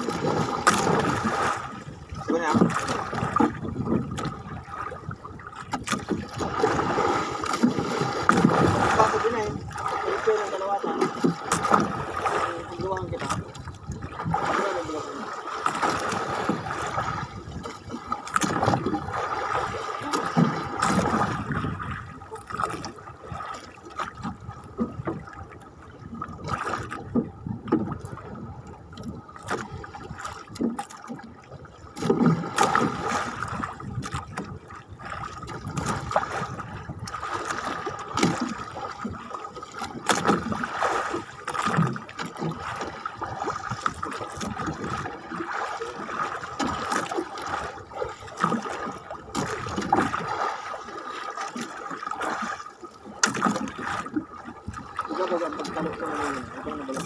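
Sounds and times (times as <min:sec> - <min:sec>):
sea water slapping against boat hull: 0:00.0 - 0:57.0.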